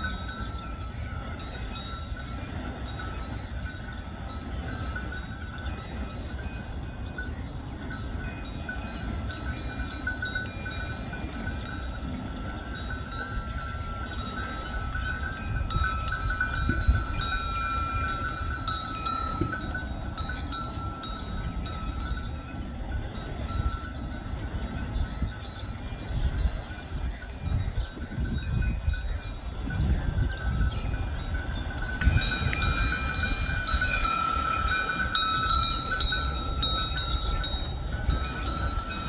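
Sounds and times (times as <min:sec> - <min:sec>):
low rumble of turning mechanism: 0:00.0 - 0:39.0.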